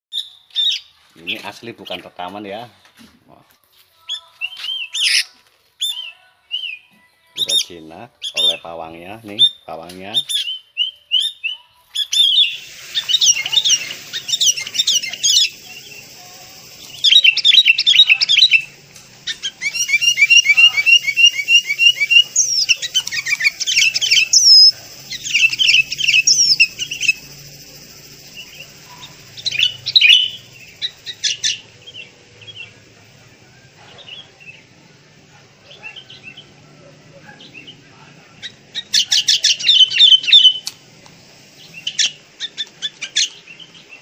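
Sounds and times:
bulbul chattering in high chirps: 0:12.0 - 0:34.7.

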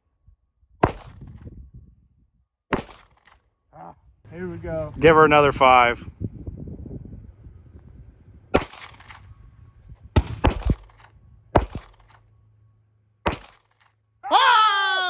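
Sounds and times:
pistol shots: 0:00.8 - 0:01.2, 0:02.7 - 0:03.4, 0:08.5 - 0:09.3, 0:10.2 - 0:12.3, 0:13.2 - 0:13.9.

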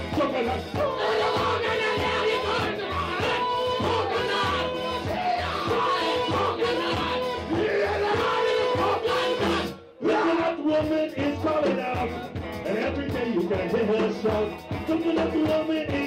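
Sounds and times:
live calypso band playing: 0:00.0 - 0:16.0.

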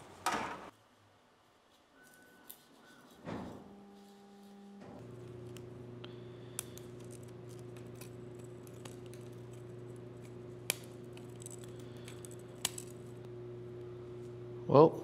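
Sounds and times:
steady low hum: 0:02.8 - 0:15.0
plastic snapping: 0:10.6 - 0:13.0.

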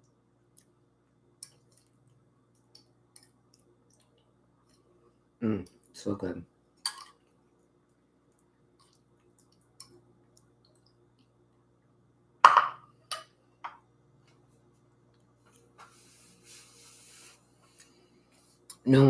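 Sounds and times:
faint steady hum: 0:00.0 - 0:19.0
tableware knocking and clinking: 0:12.4 - 0:13.8.

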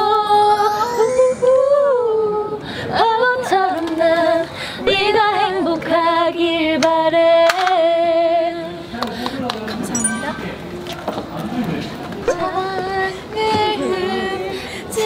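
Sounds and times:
women singing unaccompanied: 0:00.0 - 0:10.0, 0:12.2 - 0:15.0.

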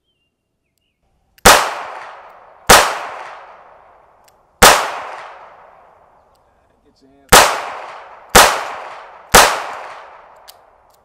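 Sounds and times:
revolver shots echoing: 0:04.6 - 0:05.8, 0:07.3 - 0:10.4.

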